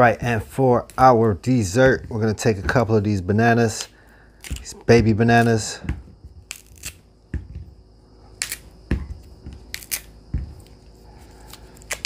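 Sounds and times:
bananas knocking on wooden board: 0:01.0 - 0:03.0, 0:07.3 - 0:07.8, 0:08.8 - 0:09.7, 0:10.3 - 0:10.7.

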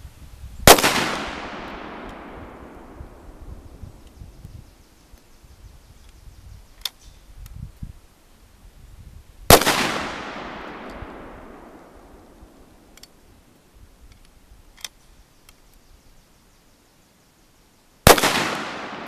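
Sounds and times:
gunshots with echo: 0:00.7 - 0:03.2, 0:09.5 - 0:12.1, 0:18.1 - 0:19.0.

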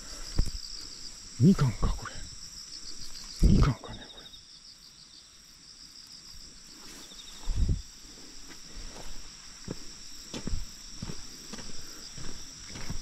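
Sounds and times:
insects chirring: 0:00.0 - 0:13.0
footsteps walking: 0:06.8 - 0:13.0.

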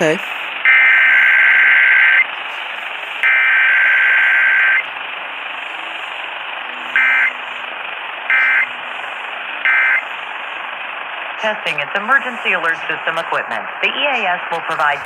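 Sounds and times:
radio static hiss: 0:00.0 - 0:15.0
buzzy digital data bursts: 0:03.2 - 0:04.8, 0:08.3 - 0:08.9, 0:09.6 - 0:10.1.

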